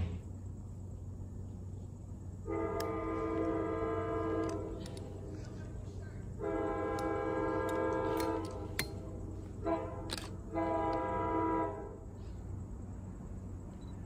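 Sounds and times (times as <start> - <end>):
locomotive air horn blasts: 2.4 - 5.0, 6.4 - 12.2.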